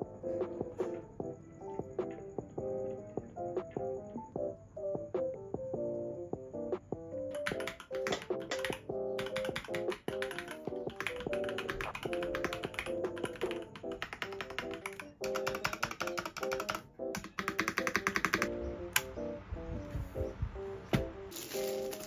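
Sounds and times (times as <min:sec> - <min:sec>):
background music: 0:00.0 - 0:22.0
mechanical keyboard typing: 0:07.3 - 0:19.1.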